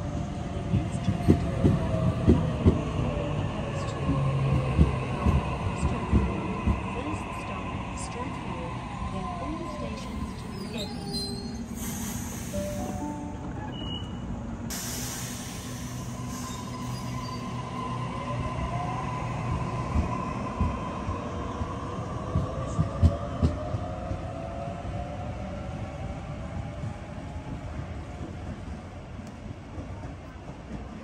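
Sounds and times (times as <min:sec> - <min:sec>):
train wheels squealing: 0:10.2 - 0:13.0, 0:13.6 - 0:14.2, 0:14.8 - 0:17.6.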